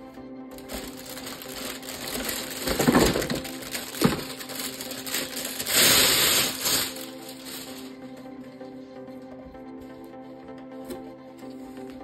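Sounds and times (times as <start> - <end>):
plastic packaging crinkling: 0.5 - 8.0
loud rustle: 0.7 - 7.9.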